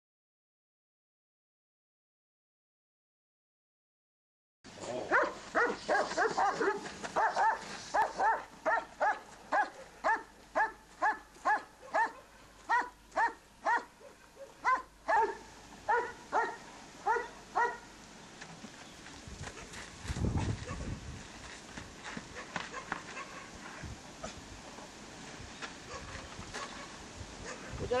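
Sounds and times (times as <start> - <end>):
dog barking: 5.1 - 17.9, 22.3 - 23.5, 25.9 - 27.8.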